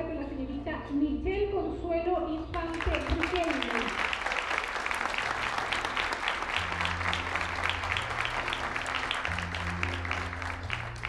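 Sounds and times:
soft background music: 0.0s - 11.0s
audience applauding: 2.7s - 11.0s.

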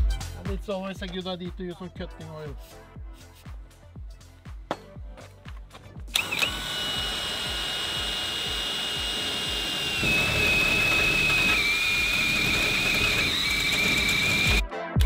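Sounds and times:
drill cutting into steel: 6.1s - 14.6s.

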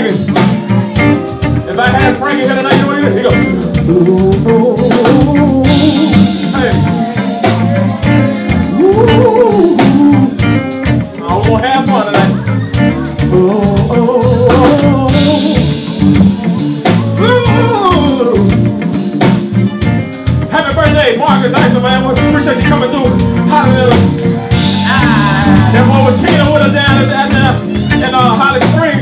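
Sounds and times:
live rock band playing: 0.0s - 29.0s
man singing into a microphone: 1.7s - 6.7s, 8.7s - 10.4s, 13.1s - 15.8s, 17.2s - 18.6s, 24.9s - 29.0s.

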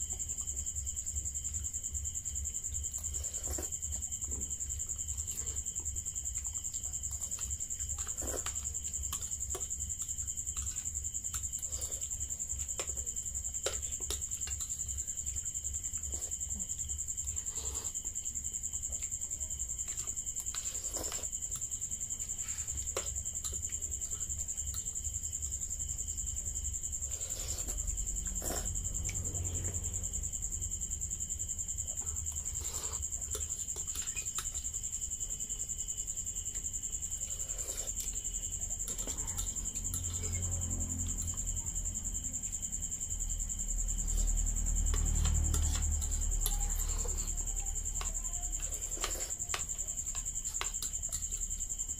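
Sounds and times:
crickets chirring: 0.0s - 51.9s.

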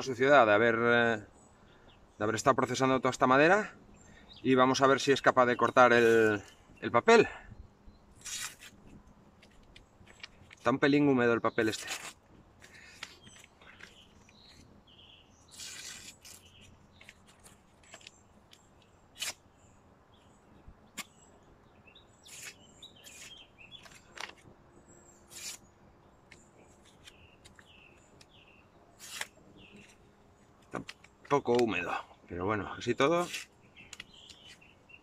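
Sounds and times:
paper rustling: 8.2s - 10.7s, 11.6s - 14.6s, 15.5s - 18.2s, 22.3s - 24.5s, 29.0s - 30.0s
knife rasping through paper: 15.5s - 16.6s, 22.2s - 23.4s, 25.3s - 25.7s, 29.0s - 29.3s, 33.2s - 33.5s.

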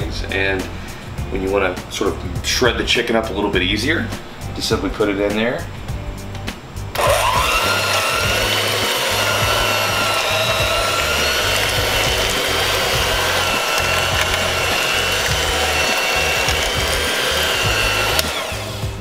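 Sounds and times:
electric hand mixer whining: 7.0s - 19.0s.

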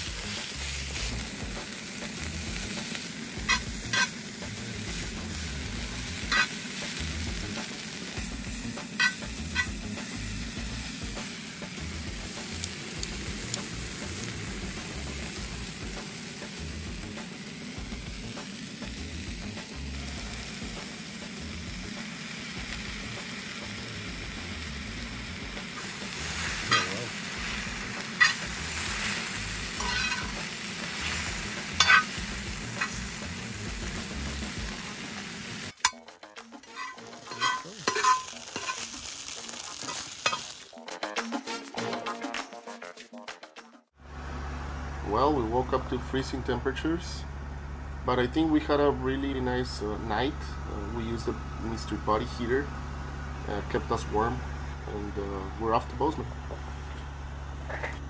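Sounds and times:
noodles sizzling in pan: 0.0s - 36.0s, 36.7s - 40.8s
metal utensil clinking on pan: 9.0s - 9.7s, 26.6s - 27.0s, 28.2s - 28.4s, 29.8s - 30.4s, 31.8s - 32.1s, 36.7s - 38.9s, 39.9s - 40.5s.

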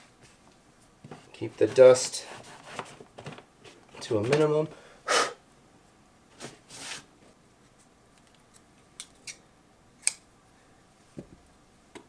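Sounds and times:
cloth wiping drywall: 6.4s - 7.1s.

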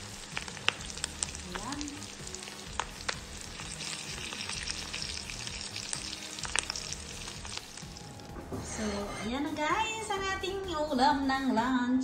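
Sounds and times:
fish sizzling in hot oil: 0.0s - 8.3s.

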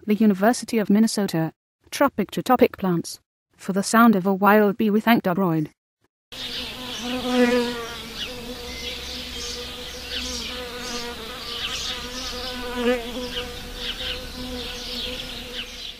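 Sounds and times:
bee buzzing in flight: 6.4s - 15.9s.

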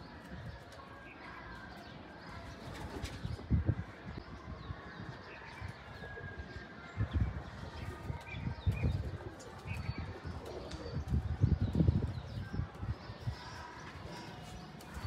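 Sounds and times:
small birds chirping: 6.9s - 15.0s.

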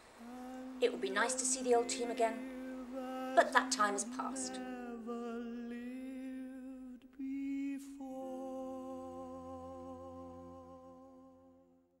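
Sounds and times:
sustained music chord: 0.3s - 5.5s.

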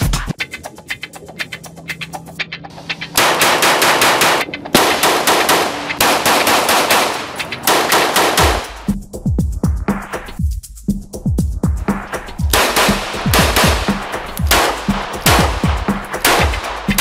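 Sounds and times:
rapid pistol gunfire: 3.2s - 8.9s, 12.5s - 17.0s.

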